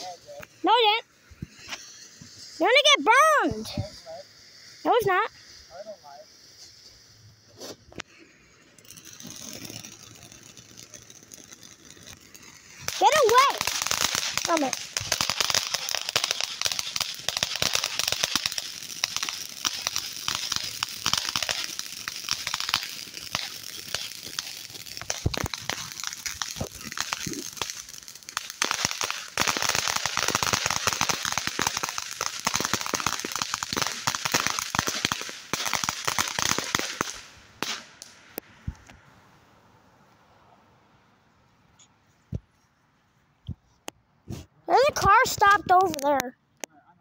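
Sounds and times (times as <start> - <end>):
firework fountain crackling and hissing: 0.0 - 40.6, 44.2 - 46.3
firework pops: 8.8 - 39.0, 42.3 - 42.5.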